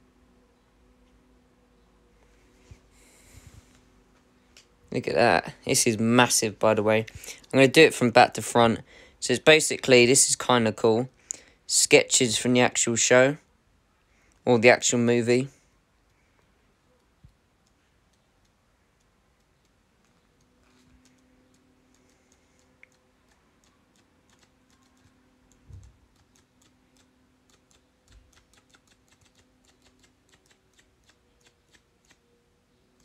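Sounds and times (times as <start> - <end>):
paper pages flicking: 26.1 - 32.2.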